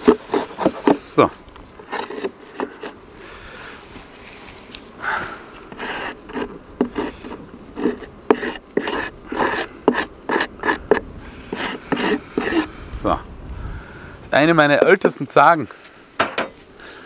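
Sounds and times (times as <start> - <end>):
scraper scraping wood: 0.0 - 3.0, 5.6 - 13.0.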